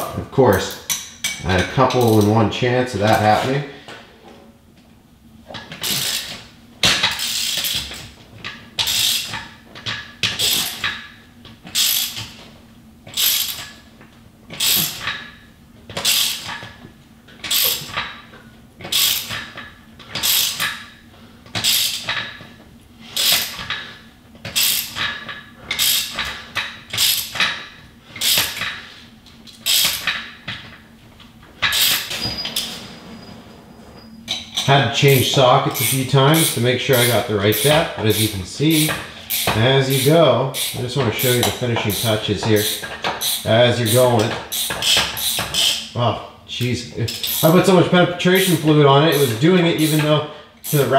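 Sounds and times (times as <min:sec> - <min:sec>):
ratchet wrench clicking: 0:07.0 - 0:07.9, 0:08.8 - 0:09.4, 0:10.3 - 0:11.0, 0:11.7 - 0:12.3, 0:13.1 - 0:13.7, 0:14.6 - 0:15.2, 0:16.0 - 0:16.6, 0:17.4 - 0:18.0, 0:18.8 - 0:19.6, 0:20.2 - 0:20.8, 0:21.6 - 0:22.2, 0:23.2 - 0:23.8, 0:24.6 - 0:27.6, 0:28.2 - 0:28.7, 0:29.6 - 0:30.2, 0:31.7 - 0:32.2, 0:34.6 - 0:45.9, 0:47.1 - 0:47.6, 0:48.4 - 0:50.9.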